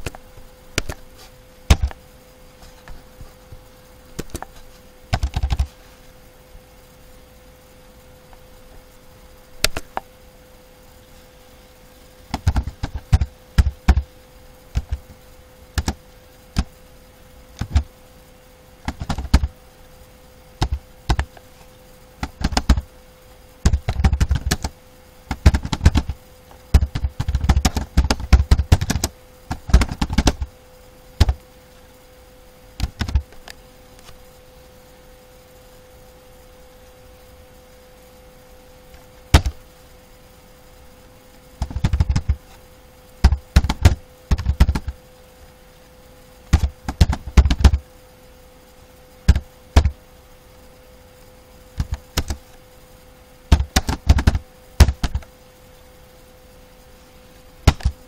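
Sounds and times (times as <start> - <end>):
faint hum: 0.0 - 58.0
keyboard typing: 5.1 - 5.7, 12.3 - 14.1, 15.8 - 16.0, 17.6 - 17.9, 18.9 - 19.5, 20.6 - 21.4, 22.2 - 22.9, 23.7 - 24.7, 25.3 - 30.5, 31.2 - 31.4, 32.8 - 33.2, 41.6 - 42.4, 43.2 - 45.0, 46.5 - 47.8, 51.8 - 52.4, 53.5 - 55.3, 57.7 - 58.0.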